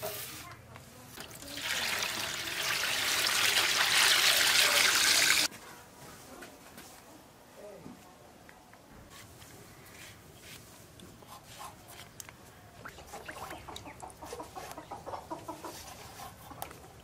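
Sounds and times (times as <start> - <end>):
chickens clucking: 12.9 - 17.0.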